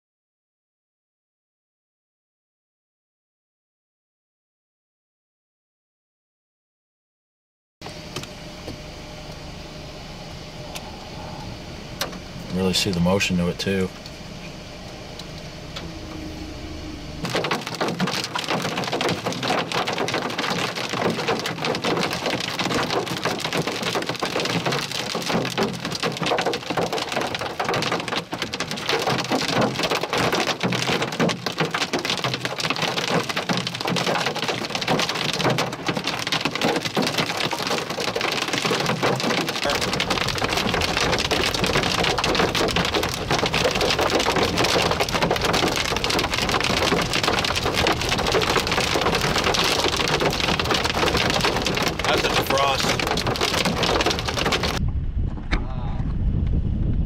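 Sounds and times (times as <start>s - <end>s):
low rumble: 7.9s - 18.2s, 39.6s - 57.0s
hail and rain pelting vehicle: 12.0s - 14.1s, 15.2s - 54.8s.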